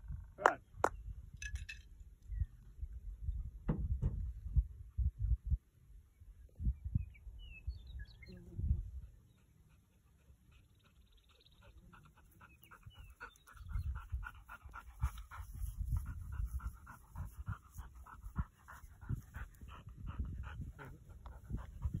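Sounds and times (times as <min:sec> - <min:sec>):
dog panting rapidly: 0:09.0 - 0:22.0.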